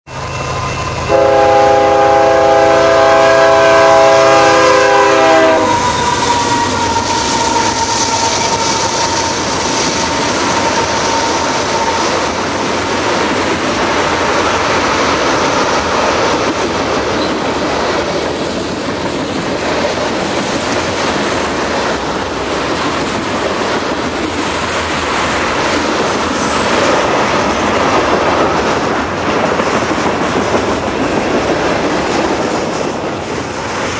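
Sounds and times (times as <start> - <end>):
train horn blast: 0.2 - 9.6
train wheel clatter: 2.4 - 33.9.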